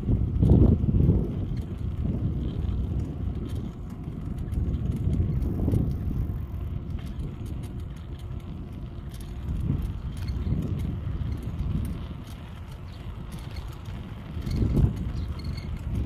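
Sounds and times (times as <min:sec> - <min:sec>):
bicycle tyre rumble on paving: 0:00.0 - 0:16.0
wind buffeting microphone: 0:00.0 - 0:16.0
light rattling clicks: 0:02.5 - 0:16.0.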